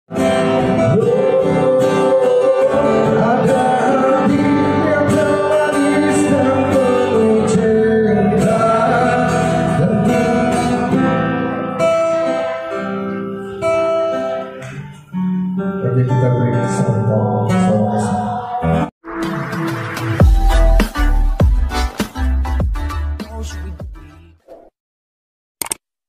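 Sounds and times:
strummed acoustic guitar: 0.1s - 24.2s
man singing: 0.2s - 11.8s, 15.8s - 18.9s, 23.0s - 24.4s.

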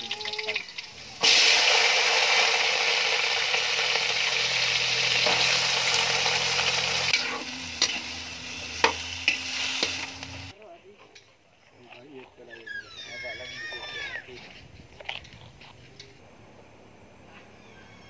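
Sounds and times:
food sizzling in hot oil: 0.0s - 10.5s.

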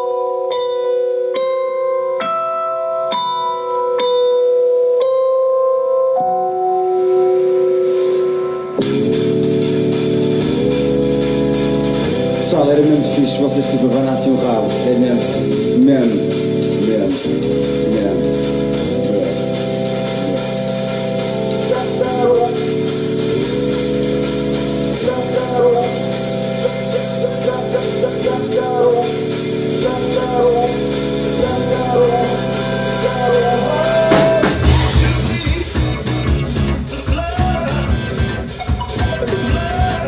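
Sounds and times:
live rock band playing: 7.7s - 40.0s
bass and drums: 8.8s - 40.0s.

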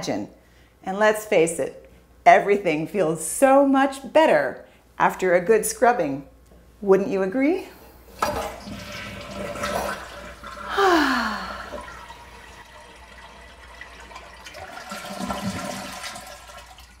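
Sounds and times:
toilet flushing water rush: 8.2s - 17.0s.

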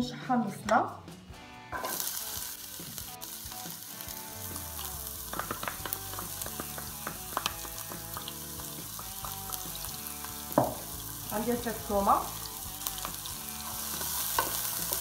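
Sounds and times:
onion sizzling in oil: 1.7s - 15.0s.

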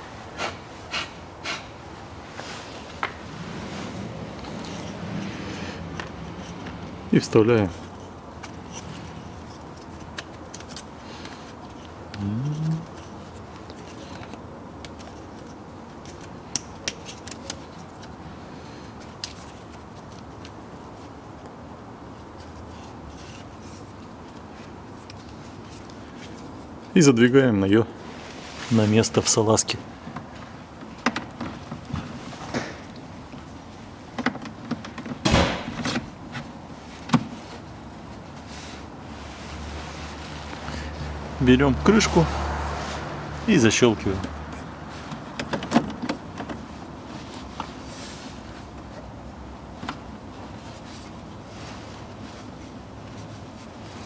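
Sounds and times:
scraping rustle: 2.2s - 11.9s, 28.0s - 31.0s, 36.0s - 41.2s, 46.4s - 49.1s, 49.8s - 54.0s
person humming: 12.1s - 13.0s.

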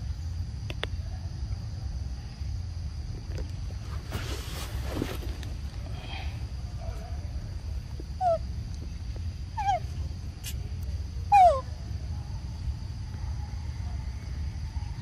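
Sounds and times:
young monkey calling: 8.2s - 8.4s, 9.6s - 10.6s, 11.3s - 11.7s.

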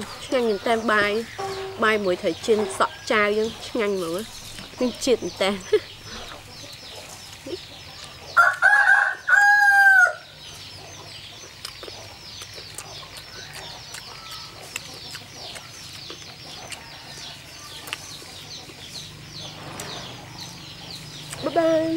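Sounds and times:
faint high chirping: 0.0s - 8.5s
rooster crowing: 8.4s - 10.3s.

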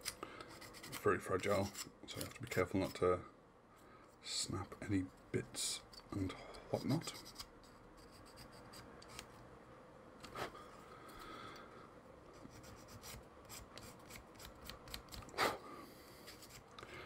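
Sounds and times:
faint scraping of plastic parts: 0.0s - 3.2s, 4.9s - 9.5s, 16.1s - 17.0s.

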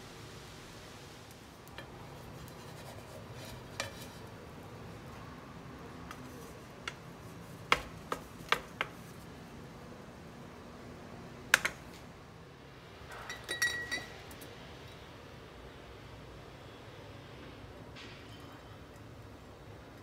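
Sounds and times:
wooden spatula scraping a pan: 1.8s - 4.5s
metal pot clinking: 13.1s - 14.3s.

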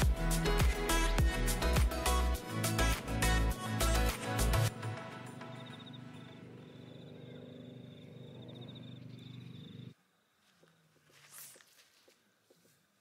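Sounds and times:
distant watercraft engine droning: 5.4s - 9.9s.

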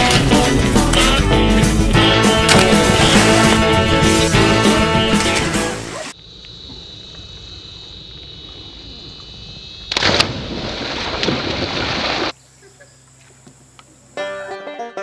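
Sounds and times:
rushing water: 2.1s - 6.1s
loud splash into water: 2.4s - 4.4s, 9.9s - 12.3s.

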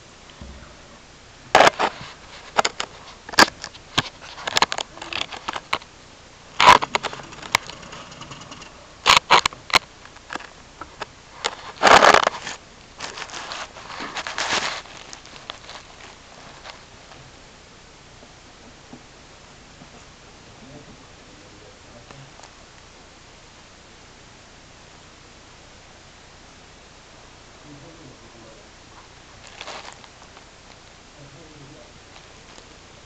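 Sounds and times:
wood shavings rustling and crackling: 11.3s - 16.9s, 29.4s - 30.8s.

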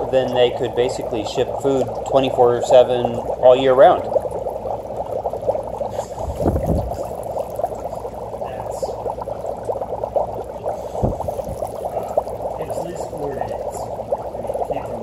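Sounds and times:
deep low gurgle: 0.0s - 15.0s
dry ice bubbling in water: 0.0s - 15.0s
low thump: 11.0s - 11.6s.

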